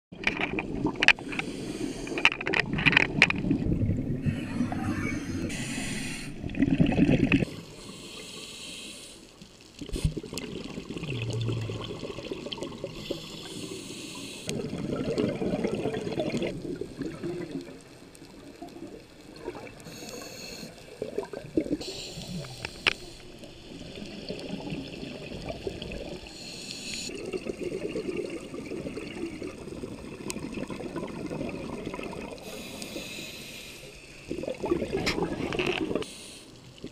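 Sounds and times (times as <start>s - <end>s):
bubbles rushing and gurgling: 0.1s - 5.7s, 6.3s - 7.8s, 9.7s - 13.9s, 14.5s - 26.4s, 27.1s - 32.8s, 34.1s - 36.1s
diver breathing through regulator: 1.2s - 2.4s, 4.2s - 6.4s, 7.4s - 9.4s, 12.9s - 14.5s, 19.8s - 20.8s, 21.8s - 23.4s, 26.2s - 27.1s, 32.4s - 34.1s, 36.0s - 36.6s.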